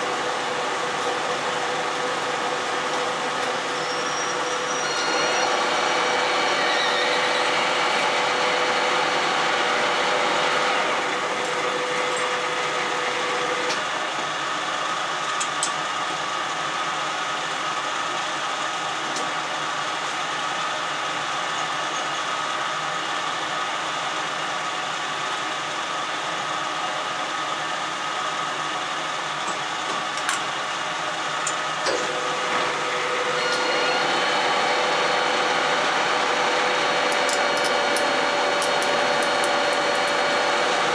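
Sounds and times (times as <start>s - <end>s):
lathe gear whine: 0.0s - 40.9s
machine hum: 32.2s - 40.9s.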